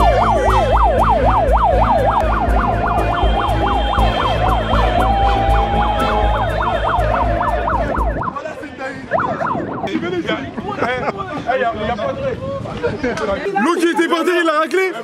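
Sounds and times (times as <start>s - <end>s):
yelping siren: 0.0s - 8.4s, 9.0s - 10.5s.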